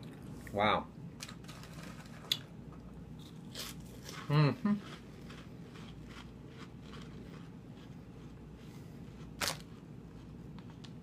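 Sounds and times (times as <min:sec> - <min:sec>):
low room hum: 0:00.0 - 0:11.0
crunchy snacks being chewed: 0:03.2 - 0:11.0.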